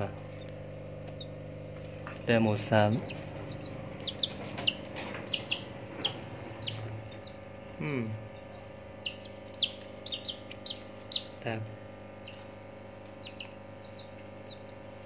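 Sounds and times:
chicks peeping: 2.1s - 7.4s, 8.3s - 11.4s, 12.2s - 15.0s.

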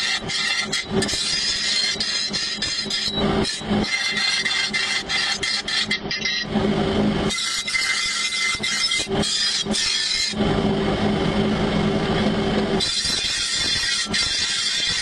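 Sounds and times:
grinding wheel grinding metal blade: 0.0s - 10.4s, 12.8s - 15.0s
steady low hum: 0.0s - 15.0s.

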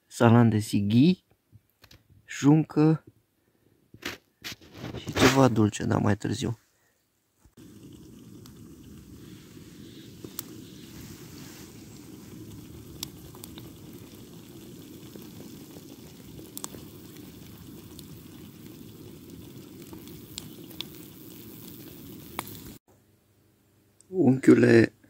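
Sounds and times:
eggs sizzling in a pan: 7.5s - 22.8s
sharp pops: 7.5s - 22.8s
camping stove burner rushing: 7.6s - 22.8s.

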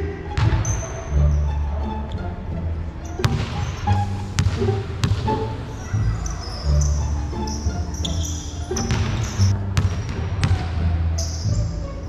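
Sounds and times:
basketball bouncing on court floor: 3.2s - 3.8s, 4.4s - 5.4s, 8.8s - 10.8s.

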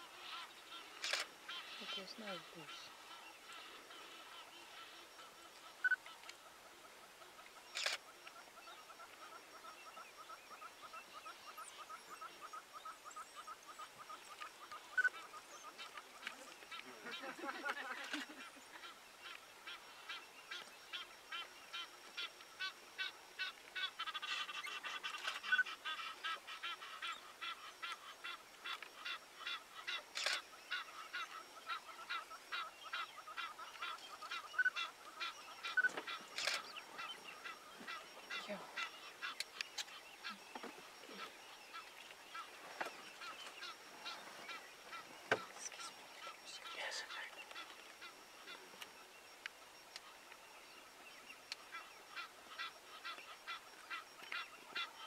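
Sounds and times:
wild dogs twittering calls: 29.1s - 48.6s.

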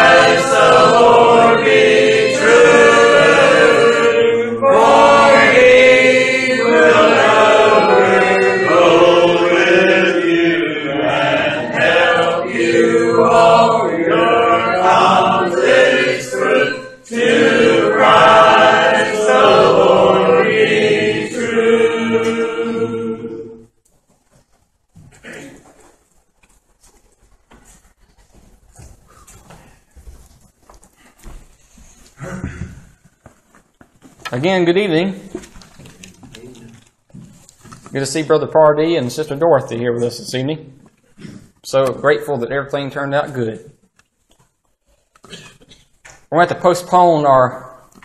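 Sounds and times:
congregation singing a hymn: 0.0s - 23.7s.

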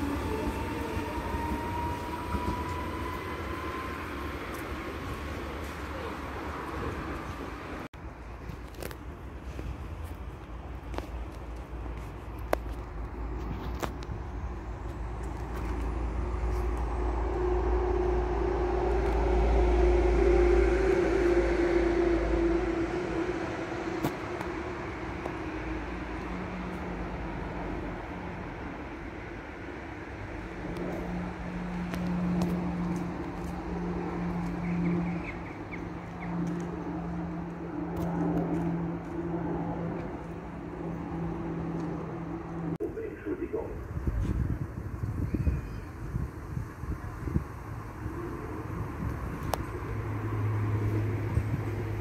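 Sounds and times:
vehicle passing with humming tone: 0.0s - 7.9s, 12.6s - 42.8s, 43.8s - 52.0s.

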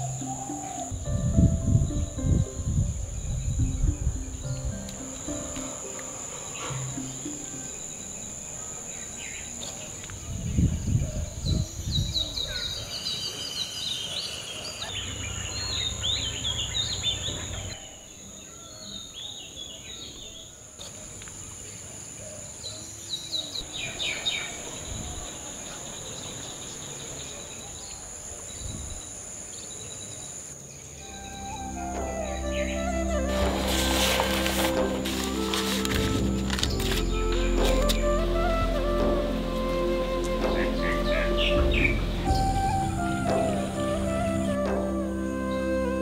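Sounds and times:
high-pitched insect drone: 0.0s - 9.9s
birds chirping: 0.0s - 46.0s
dull low bumps: 32.8s - 45.9s.

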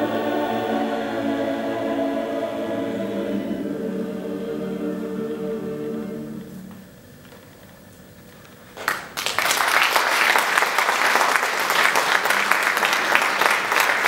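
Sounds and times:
audience applause: 8.8s - 14.0s.

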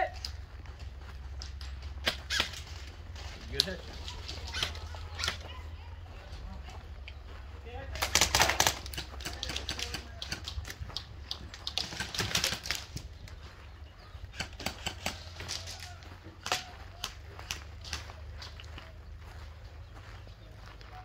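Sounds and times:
airsoft rifles firing: 7.9s - 13.0s, 14.3s - 18.1s.

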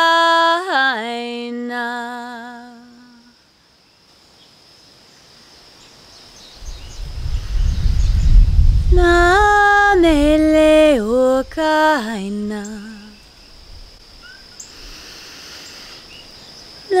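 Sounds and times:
woman singing a chant: 0.0s - 3.4s, 8.9s - 13.4s
faint high insect buzz: 0.0s - 17.0s
low rumble: 6.6s - 11.6s.

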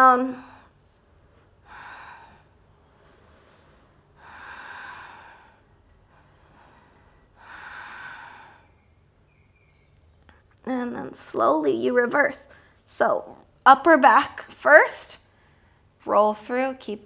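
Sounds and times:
woman breathing slowly: 0.4s - 9.5s, 15.3s - 16.0s.

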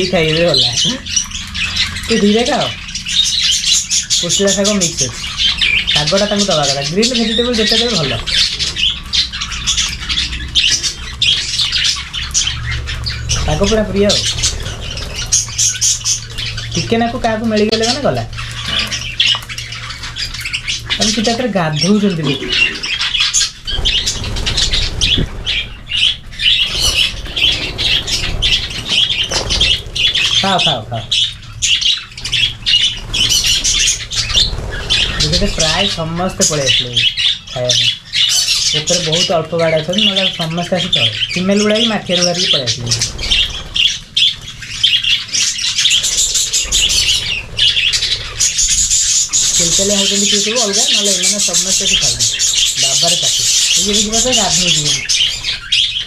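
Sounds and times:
budgerigars chattering and squawking: 0.0s - 56.0s.

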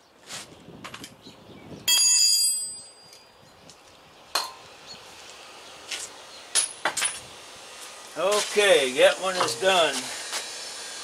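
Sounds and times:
metal on metal clink: 1.9s - 3.3s.

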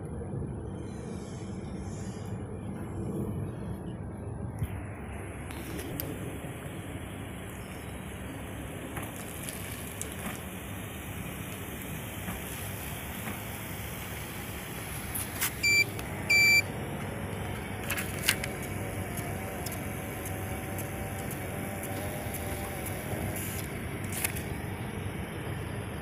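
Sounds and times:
car engine running: 11.2s - 26.0s
ticket printer whirring: 14.8s - 24.7s
short electronic beeps: 15.6s - 16.7s.

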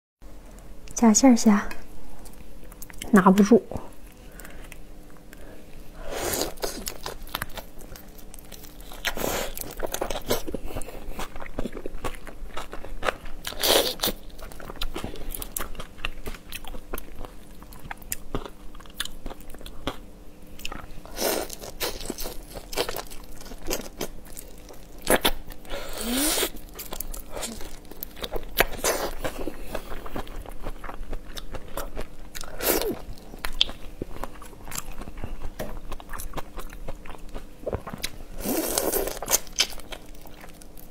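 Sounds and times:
crunchy biting into shrimp shells: 6.3s - 20.0s, 20.6s - 40.9s
wet chewing: 20.6s - 40.9s.

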